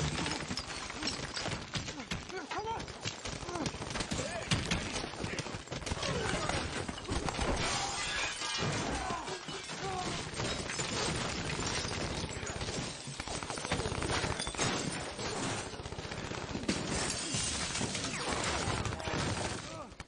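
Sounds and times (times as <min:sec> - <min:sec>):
glass shattering: 0:00.0 - 0:01.8, 0:05.7 - 0:15.7, 0:16.7 - 0:19.6
rapid gunfire: 0:01.3 - 0:07.6, 0:09.5 - 0:20.0
crashing impacts: 0:03.1 - 0:15.7.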